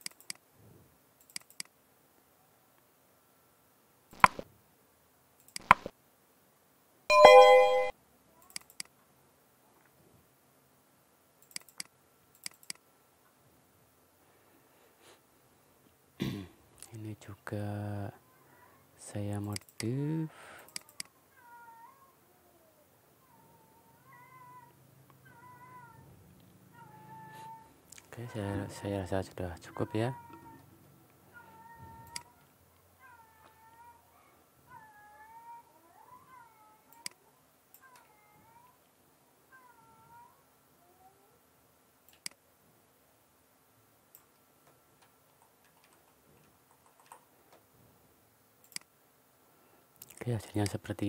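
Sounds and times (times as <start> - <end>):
computer mouse clicks: 0.0 - 0.4, 1.2 - 1.7, 4.2 - 4.4, 5.4 - 5.9, 8.4 - 9.0, 11.4 - 12.8, 19.4 - 19.9, 20.6 - 21.1, 32.0 - 32.3, 36.9 - 38.1, 42.1 - 42.4, 44.1 - 47.6, 48.6 - 48.9
sharp button clicks: 5.6 - 5.9, 7.1 - 7.9
bell-like chime: 7.1 - 7.9
faint wavering animal calls: 20.7 - 28.9.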